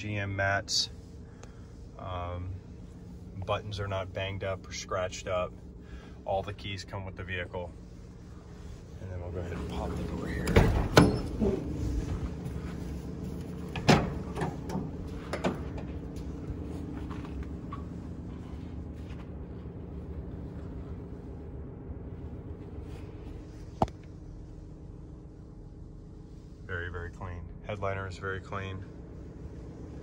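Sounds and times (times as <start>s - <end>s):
steady low hum: 0.0s - 30.0s
van side door clunking open: 10.4s - 11.8s, 13.4s - 16.1s.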